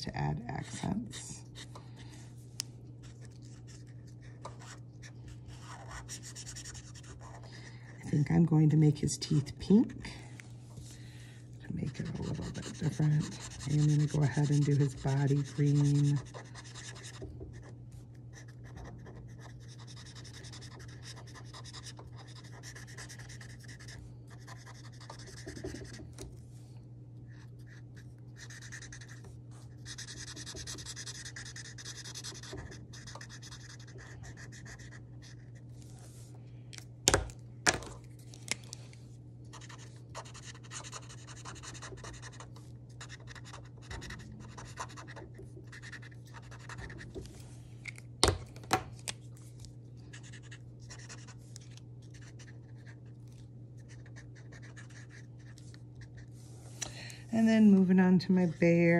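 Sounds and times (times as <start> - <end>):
marker scratching on paper: 5.5 - 7.5, 11.8 - 17.7, 18.3 - 26.0, 28.4 - 29.2, 29.8 - 35.4, 39.5 - 47.0, 53.8 - 55.5.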